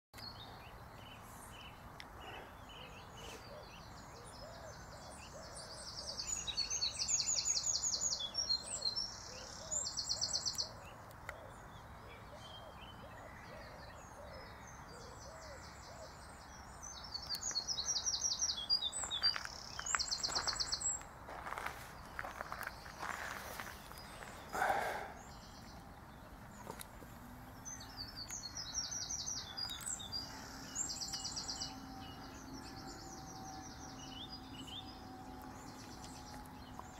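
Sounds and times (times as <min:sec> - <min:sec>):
faint outdoor background: 0:00.2 - 0:36.9
songbird trilling: 0:27.5 - 0:36.9.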